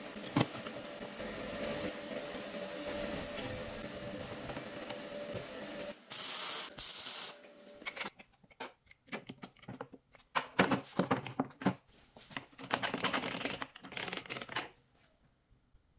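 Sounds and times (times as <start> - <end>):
arc welding hiss and crackle: 5.9 - 7.4.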